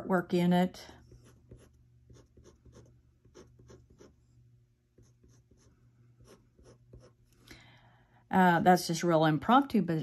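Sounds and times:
pen scratching on card: 1.1 - 4.2.

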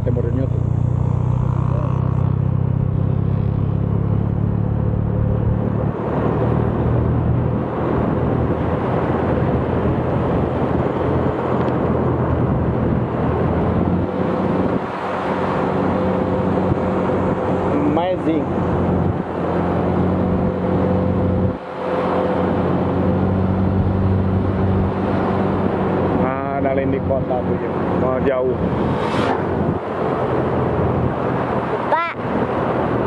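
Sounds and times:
motorcycle engine running: 0.0 - 5.8
wind and road noise: 0.0 - 33.0.

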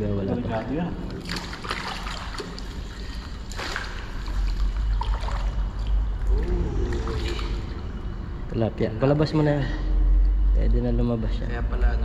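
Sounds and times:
water splashing and sloshing: 0.0 - 10.6
low rumble: 4.4 - 12.0.

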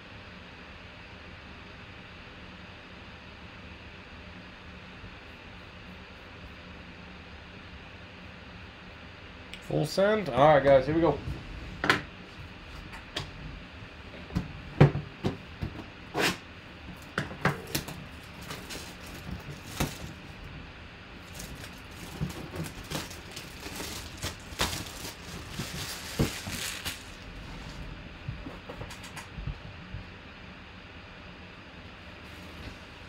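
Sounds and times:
plastic shrink wrap tearing: 17.6 - 20.2, 21.2 - 27.3.

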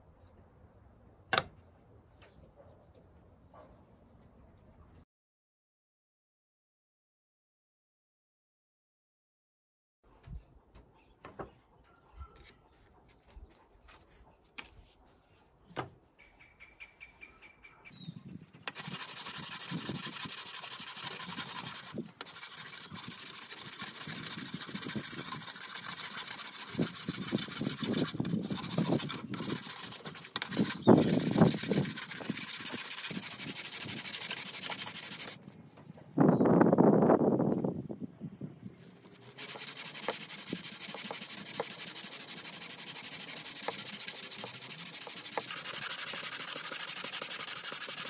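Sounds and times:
sandpaper rubbing wood: 18.6 - 35.6, 38.8 - 48.0.

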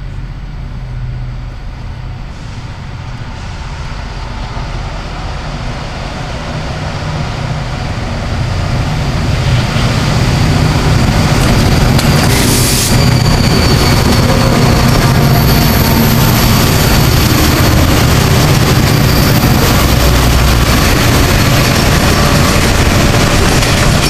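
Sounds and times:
diesel locomotive engine rumble: 0.0 - 24.0.

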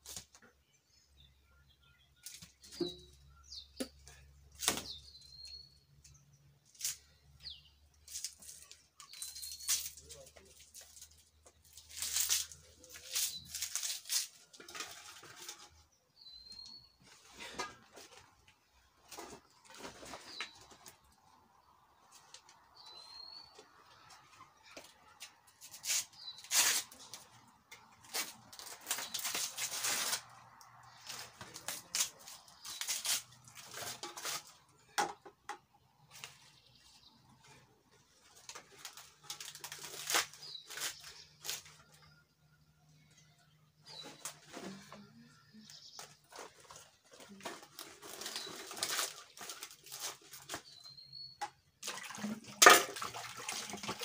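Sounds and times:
small bird chirping: 1.1 - 10.5
leaves rustling and tearing: 8.1 - 15.6, 25.6 - 27.2, 28.0 - 34.5, 38.3 - 41.9, 46.0 - 50.9.

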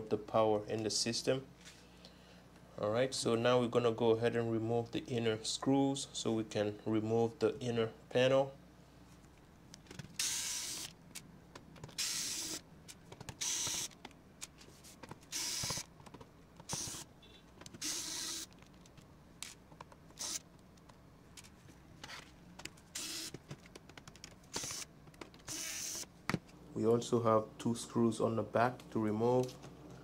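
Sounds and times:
electric screwdriver whirring: 10.2 - 11.0, 11.9 - 12.6, 13.4 - 14.0, 15.3 - 15.9, 16.6 - 17.1, 17.8 - 18.5, 19.4 - 20.5, 22.9 - 23.4, 24.5 - 26.1
clicks and taps on plastic: 22.6 - 24.4.

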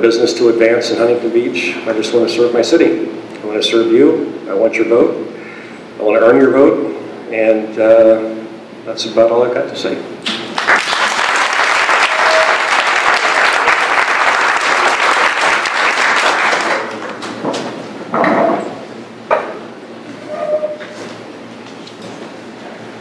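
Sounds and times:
audience clapping: 10.4 - 17.3.

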